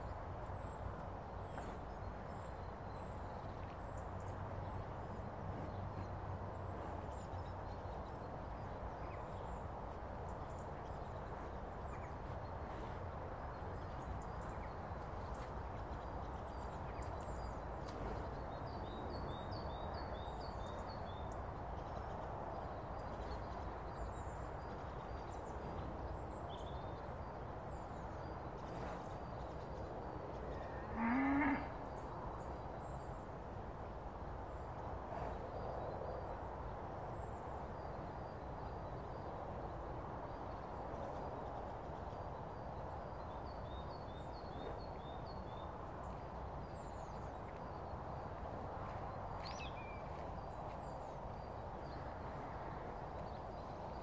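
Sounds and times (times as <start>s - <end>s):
small birds singing: 0.0s - 54.0s
cow mooing: 30.8s - 31.7s.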